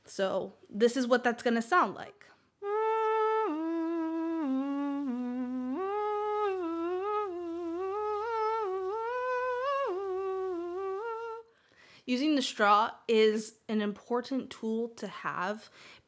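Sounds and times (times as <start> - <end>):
woman singing through a straw: 2.6 - 11.5.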